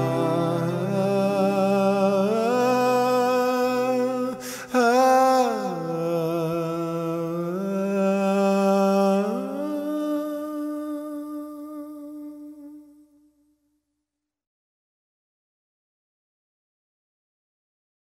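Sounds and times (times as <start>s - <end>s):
slow wordless background music: 0.0s - 10.5s.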